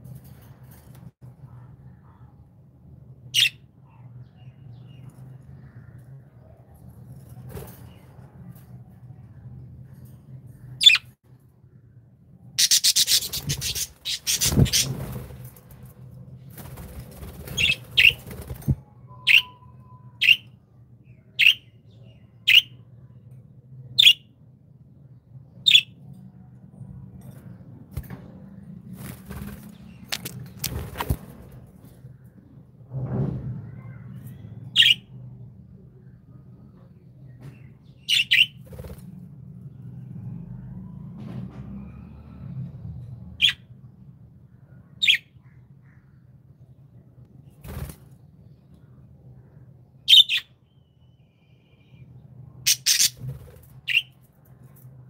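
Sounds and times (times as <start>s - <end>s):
budgerigars chirping: 12.6s - 14.9s, 52.7s - 53.2s
wings flapping: 13.0s - 18.8s, 28.9s - 31.6s, 47.6s - 48.2s.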